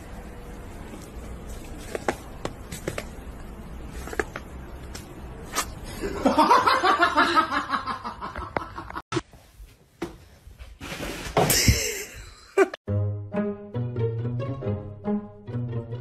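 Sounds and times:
person giggling: 11.5 - 12.8.

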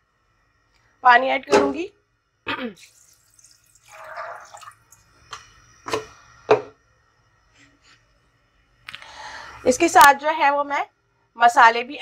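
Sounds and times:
water splashing: 2.8 - 5.1
water poured into metal pot: 2.8 - 5.4.

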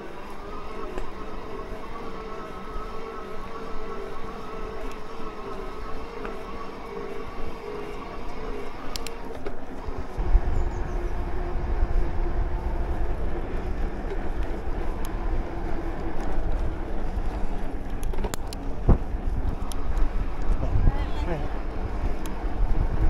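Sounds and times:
electric motor whine: 0.0 - 23.0
wind on microphone: 9.9 - 23.0.

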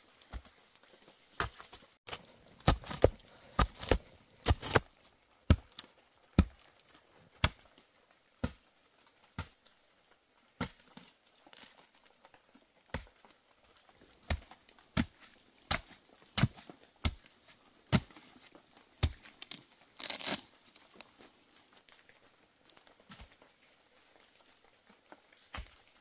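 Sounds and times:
tearing rustling sound: 2.0 - 5.0, 19.1 - 22.0.

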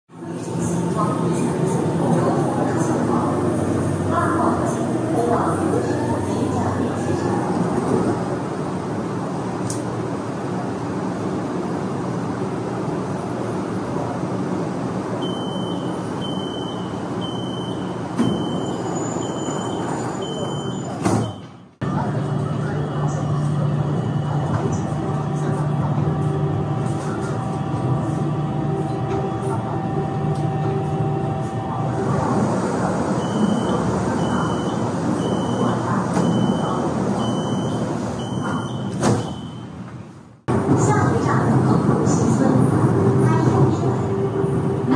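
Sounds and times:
metro train rumbling: 0.1 - 44.9
high electronic warning beep: 15.2 - 21.4
door warning beeps: 15.2 - 21.7, 33.2 - 39.8.

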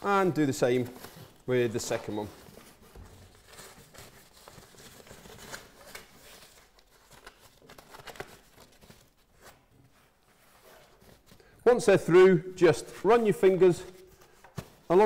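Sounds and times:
membrane rustling and crinkling: 0.0 - 11.6.

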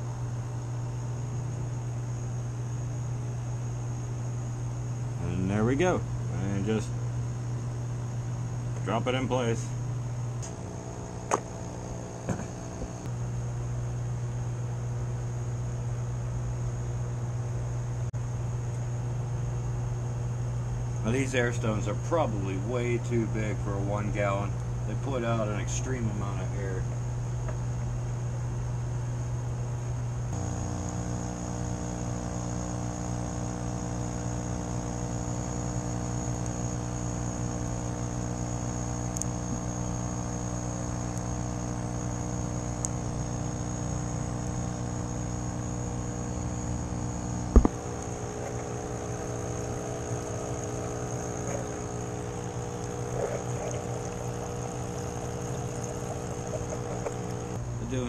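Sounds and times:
electric air pump humming: 8.7 - 13.1, 30.3 - 58.0.

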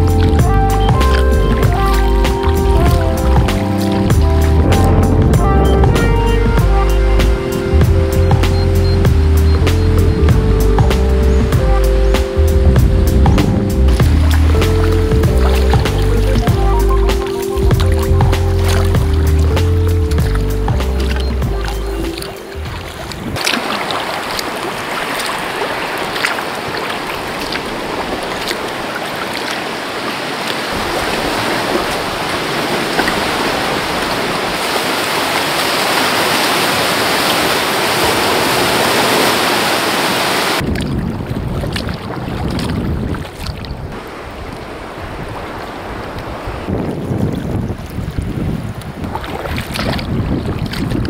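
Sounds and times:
water dripping: 0.0 - 7.2, 7.8 - 38.1
sea water sloshing and splashing: 0.0 - 9.6, 10.3 - 51.0
wind on microphone: 0.0 - 29.4, 35.8 - 51.0
water lapping: 0.0 - 51.0.

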